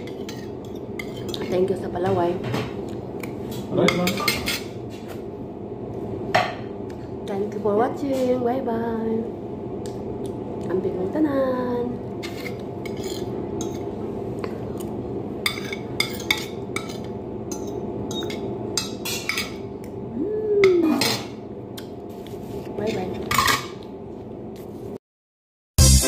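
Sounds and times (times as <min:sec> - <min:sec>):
cutlery clinking and scraping on plate: 0:00.0 - 0:01.7, 0:03.5 - 0:05.2, 0:12.2 - 0:13.9, 0:15.5 - 0:19.6, 0:23.2 - 0:23.8
steady low hum: 0:00.0 - 0:25.0.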